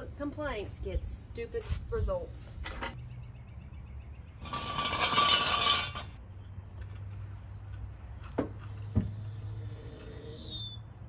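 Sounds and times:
floor jack metal scraping and clinking: 4.4s - 6.2s.

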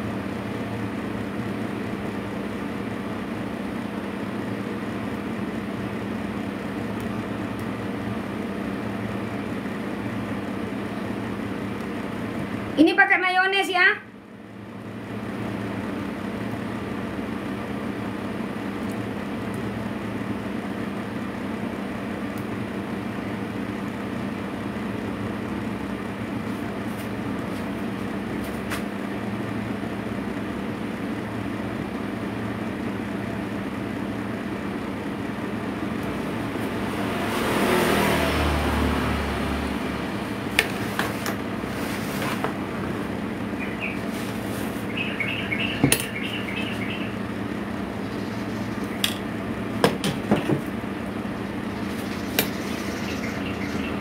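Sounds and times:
low background hum: 0.0s - 54.0s
vehicle passing: 36.1s - 40.6s.

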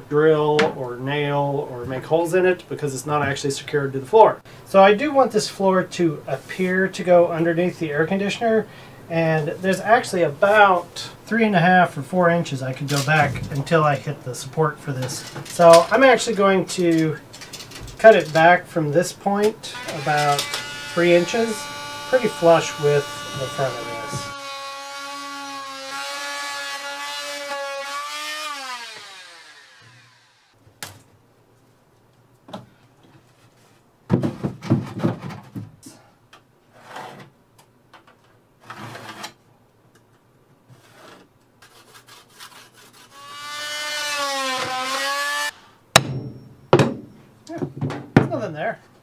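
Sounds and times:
oscillating multi-tool cutting wood: 19.7s - 30.6s, 42.4s - 45.6s
hammer knocks: 45.9s - 48.3s.

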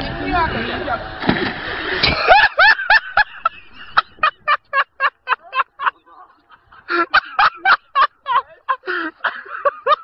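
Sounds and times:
person laughing hard: 2.0s - 10.0s.

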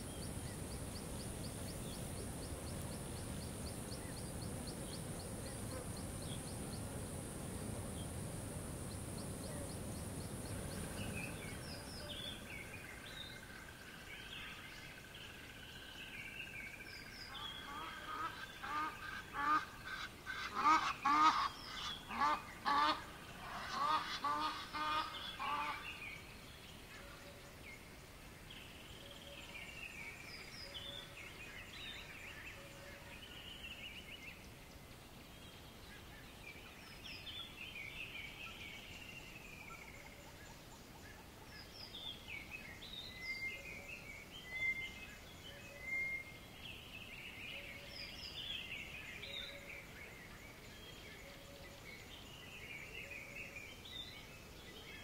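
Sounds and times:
small birds chirping: 0.0s - 20.2s
faint steady background noise: 0.0s - 55.0s.

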